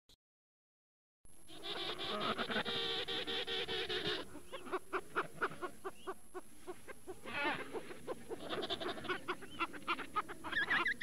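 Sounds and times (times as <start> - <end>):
penguins bleating calls: 1.5 - 5.8, 7.2 - 11.0.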